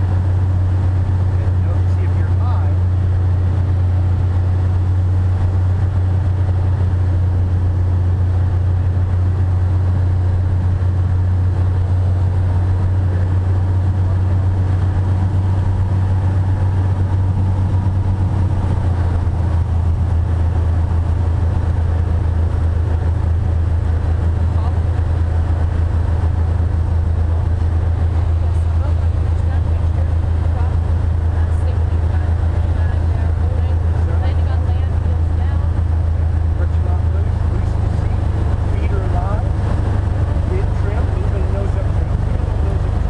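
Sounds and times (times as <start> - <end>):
airflow noise over cabin: 0.0 - 43.0
propeller aircraft engine droning: 0.0 - 43.0.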